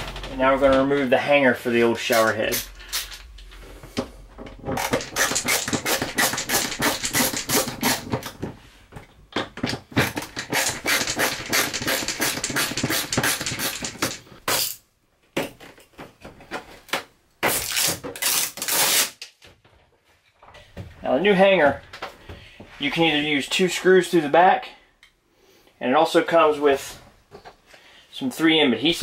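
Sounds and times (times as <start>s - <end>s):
screwdriver clicking and scraping: 2.2s - 8.4s, 9.6s - 14.8s.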